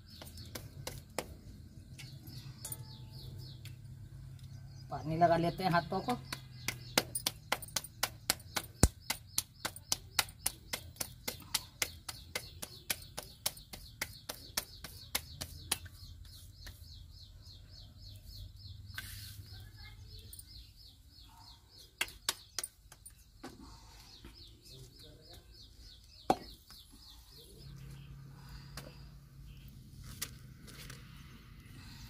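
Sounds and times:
small bird chirping: 0.0s - 32.0s
hands slapping dough: 6.2s - 16.9s, 22.0s - 23.0s.

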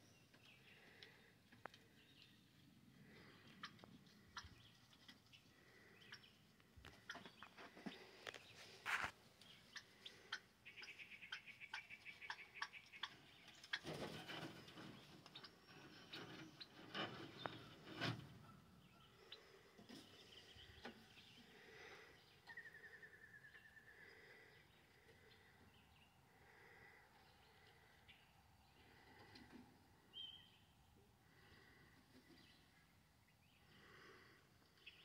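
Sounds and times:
animal scratching in dry dirt: 8.2s - 9.2s.

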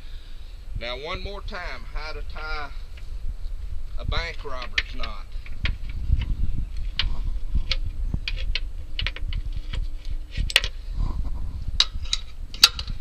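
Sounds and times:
rope handling rustle: 2.3s - 12.7s.

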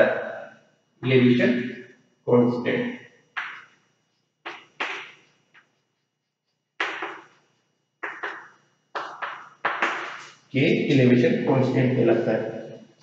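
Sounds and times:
chalk writing on chalkboard: 3.4s - 7.4s, 8.0s - 10.5s.

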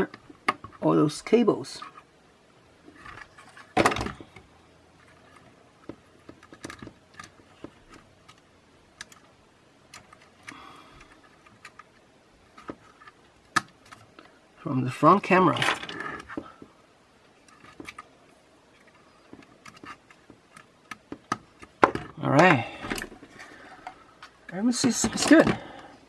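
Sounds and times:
hands clicking and tapping drone parts: 3.9s - 9.3s, 9.9s - 14.3s, 18.8s - 25.8s.

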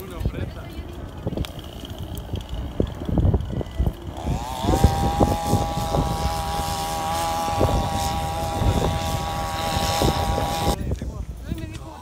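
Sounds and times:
wind buffeting microphone: 0.0s - 12.0s
motor drone: 1.2s - 10.8s.

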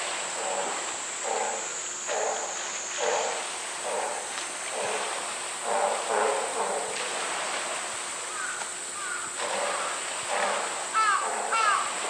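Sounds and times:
crows cawing: 8.3s - 10.0s, 10.9s - 12.0s.

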